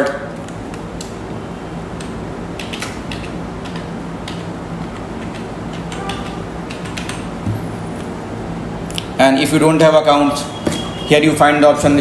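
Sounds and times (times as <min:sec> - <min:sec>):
steady low hum: 0:00.0 - 0:09.8
keyboard keys clicking: 0:02.0 - 0:08.1.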